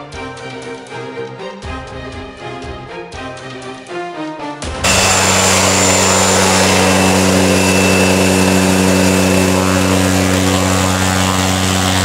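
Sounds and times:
high turbine whine: 0:04.8 - 0:12.0
propeller drone: 0:04.8 - 0:12.0.

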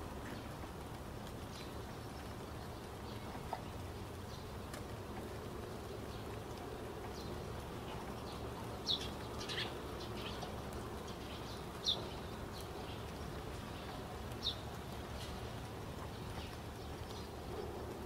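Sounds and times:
background hiss: 0:00.0 - 0:18.0.

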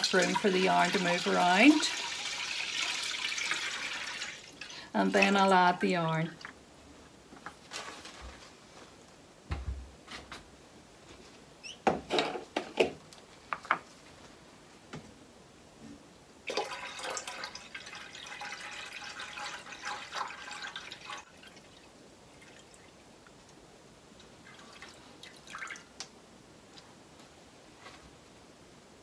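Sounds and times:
water pouring into a metal pot: 0:00.0 - 0:05.3, 0:16.5 - 0:22.9.

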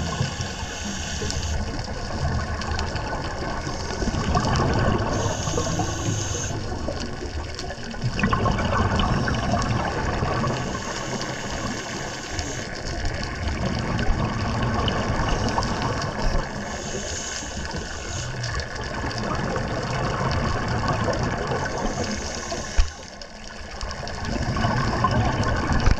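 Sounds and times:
regulator inhale hiss: 0:00.0 - 0:01.8, 0:03.6 - 0:06.8, 0:10.4 - 0:13.2, 0:15.4 - 0:18.8, 0:21.6 - 0:23.4
exhaled air bubbling: 0:00.0 - 0:25.9.

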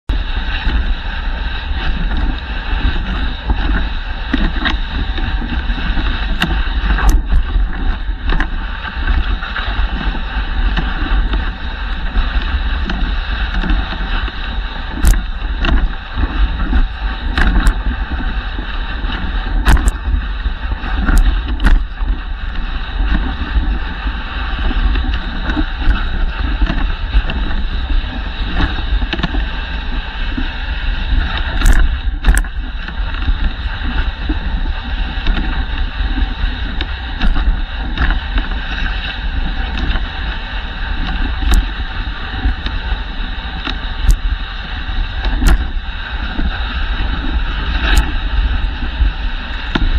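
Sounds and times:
sled runners sliding over snow: 0:00.1 - 0:49.9
sled knocks and clicks: 0:01.9 - 0:29.4, 0:45.2 - 0:49.0.

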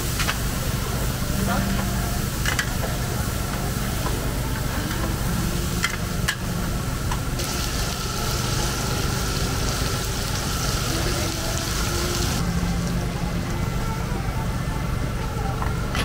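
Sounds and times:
food sizzling on a hot pan: 0:00.0 - 0:12.9
low engine-like hum: 0:00.0 - 0:16.0
bright hiss: 0:06.8 - 0:12.4.

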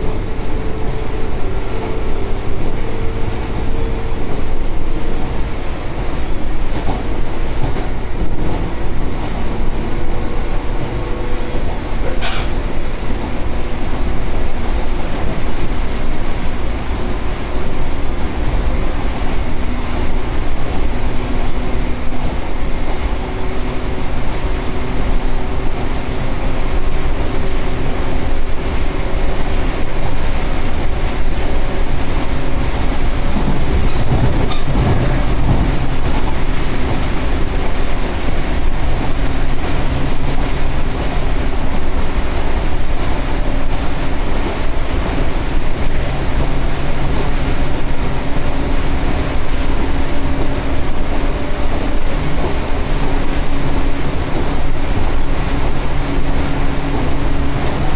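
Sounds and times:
train wheels rumbling on rail: 0:00.0 - 0:57.9.

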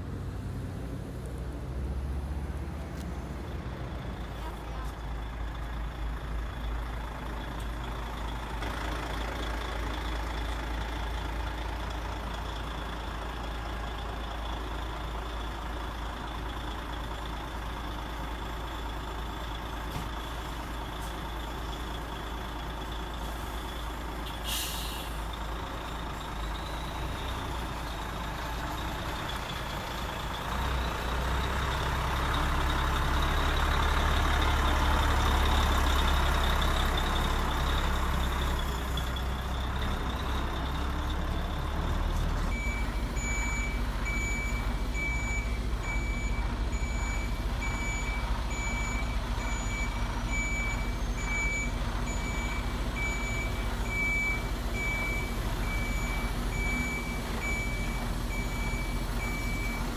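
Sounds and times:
diesel truck engine running: 0:00.0 - 0:59.9
air brake hiss: 0:24.2 - 0:25.3.

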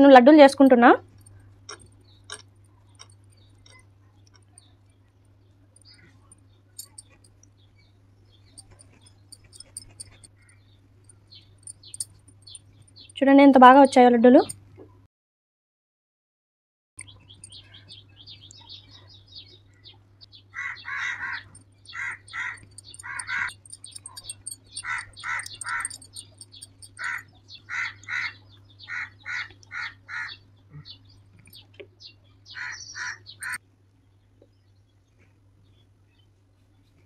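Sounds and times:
steady low hum: 0:00.0 - 0:13.2, 0:21.4 - 0:27.4
high bird chirping: 0:05.8 - 0:07.3, 0:08.4 - 0:13.2, 0:17.0 - 0:19.6, 0:20.3 - 0:33.6
harsh bird calls: 0:20.4 - 0:31.6, 0:32.5 - 0:33.6.

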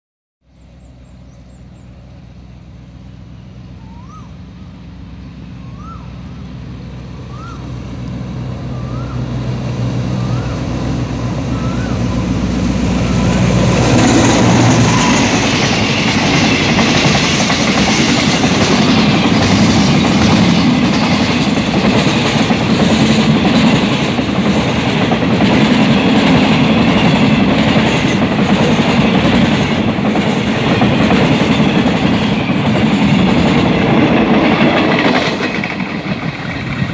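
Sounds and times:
locomotive engine drone: 0:00.5 - 0:36.9
tank wagons rumbling: 0:04.7 - 0:36.9
wheel clatter over rail joints: 0:13.9 - 0:36.9.

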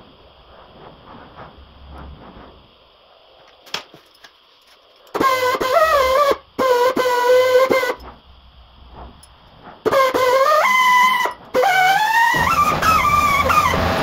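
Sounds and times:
air grinder whining: 0:05.1 - 0:08.1, 0:09.8 - 0:14.0.

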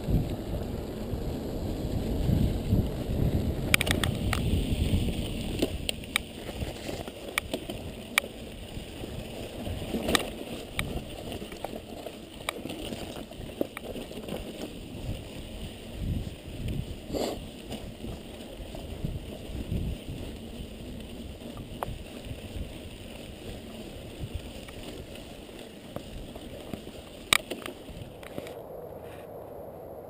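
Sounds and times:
bike rumbling over rocky trail: 0:00.0 - 0:28.5
small clicks: 0:03.7 - 0:04.5, 0:25.9 - 0:28.6.

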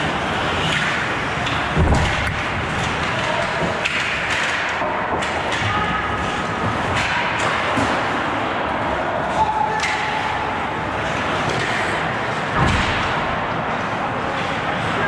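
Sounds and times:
sticks clacking: 0:00.6 - 0:08.1, 0:09.7 - 0:10.5.

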